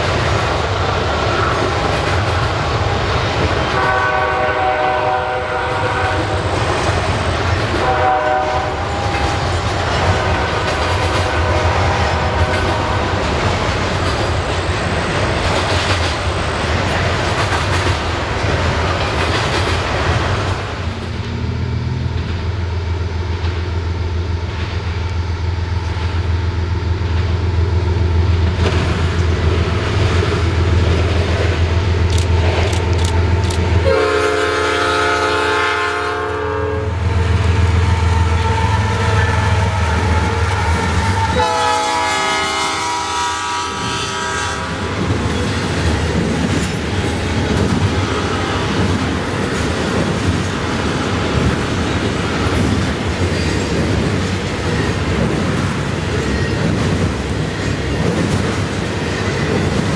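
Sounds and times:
train wheels clacking on rails: 0.0s - 36.0s, 37.1s - 59.9s
diesel locomotives rumbling: 0.0s - 59.9s
train horn blasts: 3.7s - 6.4s, 7.8s - 9.4s, 10.0s - 13.3s, 33.8s - 45.0s.

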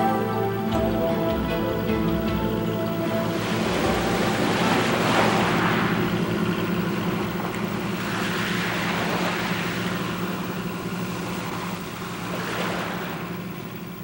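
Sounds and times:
boat engine hum: 0.0s - 14.0s
surf washing over rocks: 2.7s - 13.7s.

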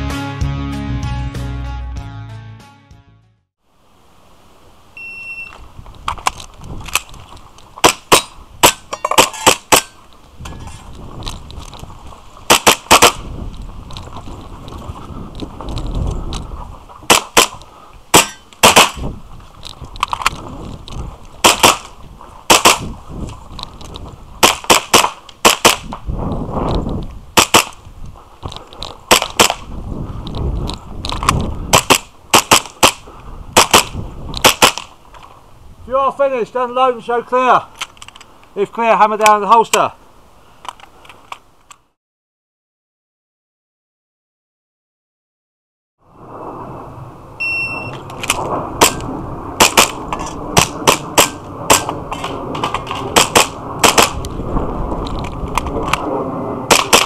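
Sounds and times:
shot timer beep: 5.0s - 5.6s, 47.4s - 48.0s
airsoft pistol firing cracks: 7.8s - 10.0s, 12.5s - 13.3s, 17.1s - 19.1s, 21.4s - 22.9s, 24.4s - 26.0s, 27.4s - 27.8s, 29.1s - 29.7s, 31.2s - 33.0s, 33.6s - 34.9s, 48.1s - 54.3s, 56.7s - 57.0s
low rustling of movement: 13.2s - 18.1s, 19.0s - 24.4s, 25.9s - 32.3s.

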